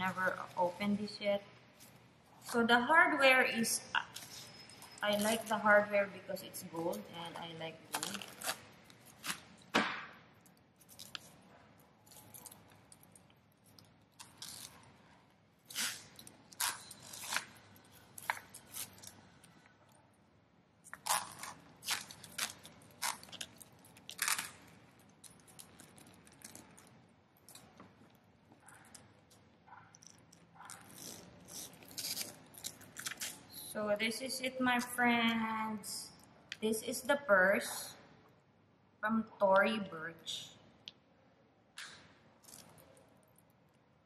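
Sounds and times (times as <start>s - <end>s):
wrapping crinkling and ripping: 7.6s - 9.7s, 10.3s - 20.0s, 20.8s - 33.7s, 42.4s - 43.8s.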